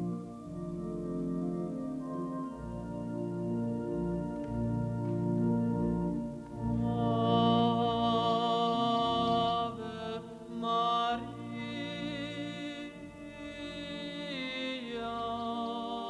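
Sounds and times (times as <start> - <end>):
organ playing held chords: 0.0 - 10.6
man singing with vibrato: 6.8 - 16.0.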